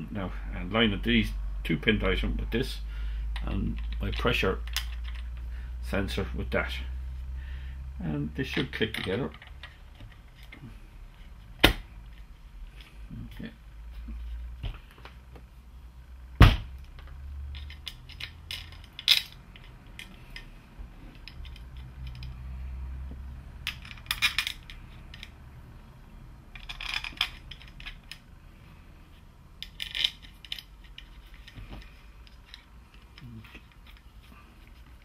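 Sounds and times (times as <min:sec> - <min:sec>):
metal parts clinking on a bench: 0:03.4 - 0:05.4, 0:17.5 - 0:22.4, 0:23.6 - 0:25.4, 0:26.5 - 0:28.3, 0:29.6 - 0:34.1.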